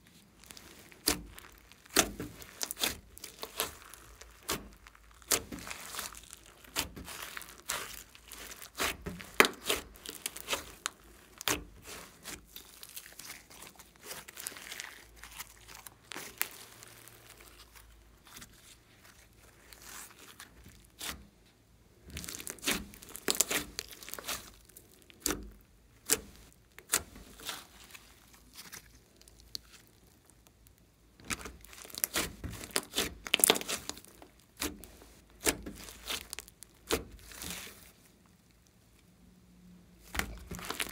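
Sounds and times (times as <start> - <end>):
slime sticky pops and crackles: 0.5 - 16.8, 22.1 - 27.8, 31.2 - 37.9, 40.1 - 40.9.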